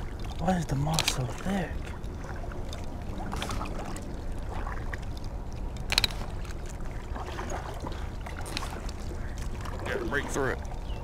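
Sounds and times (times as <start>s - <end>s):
water swishing and sloshing: 0.0s - 11.0s
kayak hull moving through moss: 1.0s - 10.4s.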